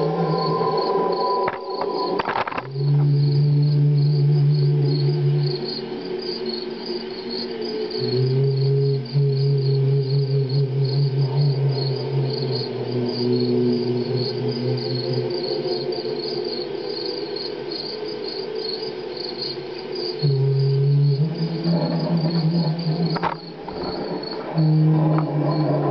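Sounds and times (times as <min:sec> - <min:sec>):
crickets chirping: 0:00.0 - 0:25.9.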